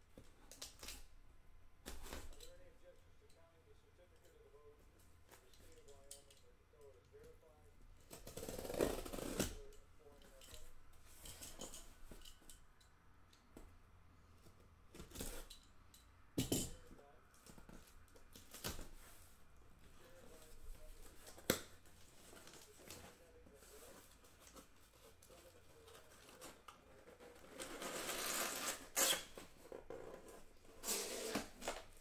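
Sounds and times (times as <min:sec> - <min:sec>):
box cutter slicing packing tape: 0:27.8 - 0:29.4.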